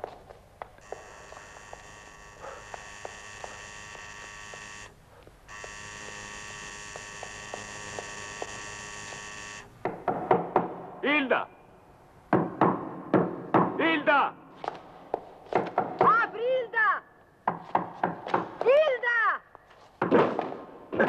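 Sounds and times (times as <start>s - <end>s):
footsteps on stairs: 0.0s - 4.6s, 14.6s - 16.2s, 17.5s - 18.8s
electric door buzzer: 0.8s - 9.8s
knocking: 9.8s - 10.8s.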